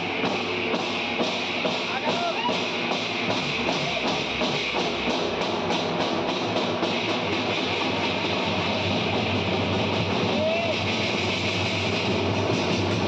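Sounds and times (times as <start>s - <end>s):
crowd voices: 0.0s - 5.0s, 7.6s - 13.0s
bass drums beaten with sticks: 0.0s - 13.0s
drum band playing: 0.0s - 13.0s.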